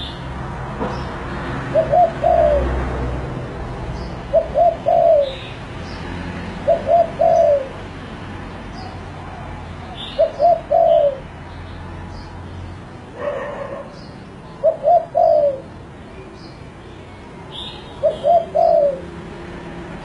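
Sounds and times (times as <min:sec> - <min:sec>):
dove cooing: 0:01.6 - 0:02.8, 0:04.2 - 0:05.6, 0:06.6 - 0:07.8, 0:08.8 - 0:11.3, 0:13.2 - 0:15.8, 0:17.5 - 0:19.2.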